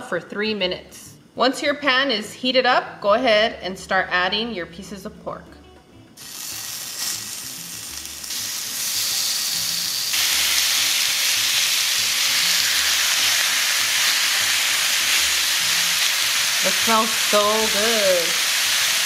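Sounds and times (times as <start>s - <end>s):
meat sizzling in a skillet: 6.2s - 19.0s.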